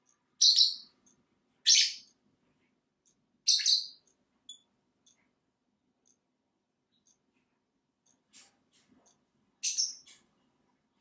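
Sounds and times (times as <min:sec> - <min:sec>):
faint ticks: 0:03.0 - 0:03.2, 0:06.0 - 0:06.3, 0:06.9 - 0:09.3.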